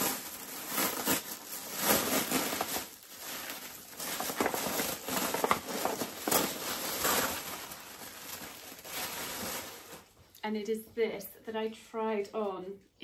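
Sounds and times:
packaging wrap crinkling: 0:00.0 - 0:10.4.

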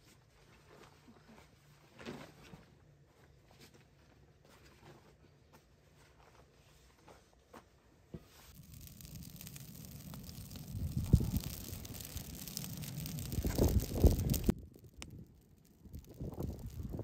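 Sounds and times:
low rumble: 0:08.6 - 0:17.0.

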